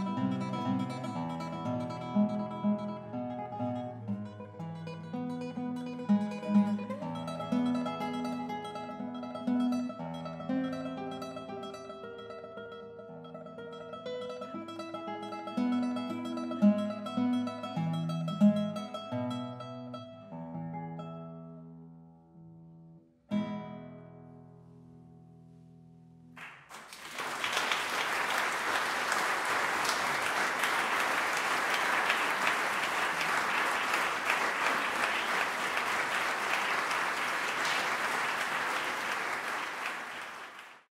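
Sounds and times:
audience applause: 0:26.4 - 0:40.9.

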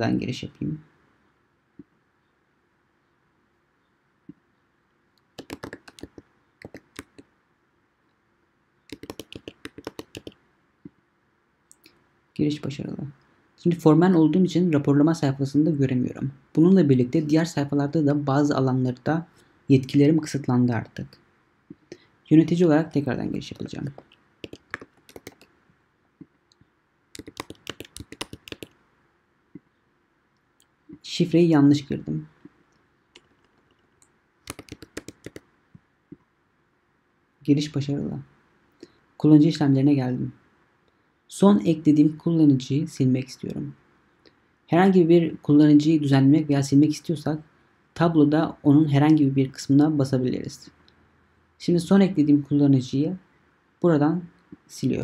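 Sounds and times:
keyboard click: 0:05.4 - 0:07.2, 0:08.9 - 0:10.4, 0:23.8 - 0:25.5, 0:27.2 - 0:28.7, 0:34.5 - 0:35.4
keyboard typing: 0:05.4 - 0:07.2, 0:08.9 - 0:10.4, 0:23.8 - 0:25.6, 0:27.2 - 0:28.8, 0:33.2 - 0:35.5.

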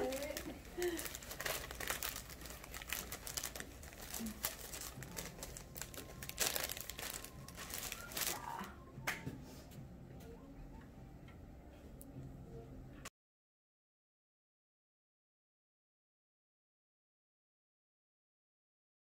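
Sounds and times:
plastic packaging crinkling: 0:00.0 - 0:08.7.

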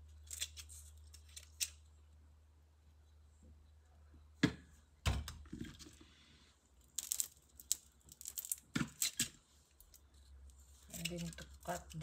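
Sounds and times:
prawn shells crackling: 0:06.8 - 0:10.0.

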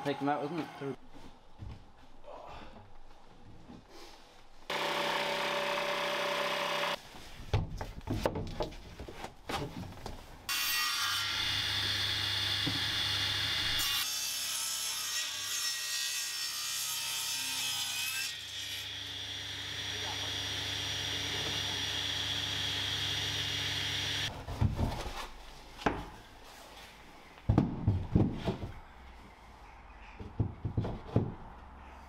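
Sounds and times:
table saw ripping timber: 0:04.7 - 0:07.0.

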